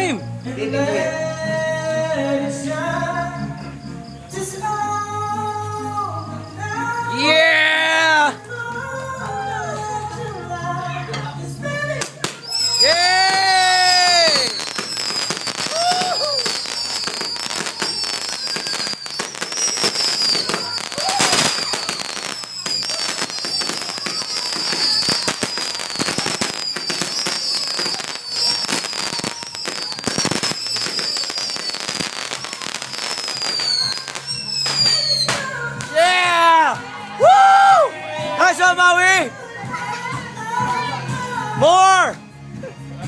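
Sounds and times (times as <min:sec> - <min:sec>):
firework fountain crackling: 0:11.6 - 0:39.3
high falling firework squeals: 0:11.9 - 0:37.9.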